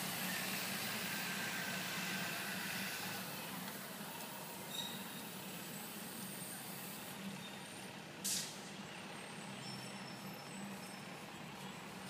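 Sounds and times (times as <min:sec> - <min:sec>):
bus air brakes hissing: 0:00.0 - 0:08.8
street traffic: 0:00.0 - 0:12.0.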